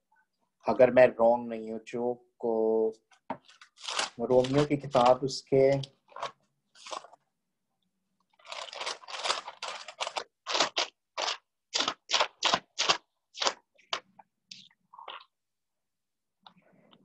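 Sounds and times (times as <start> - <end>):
thin pages turning: 3.3 - 7.2, 8.3 - 15.3.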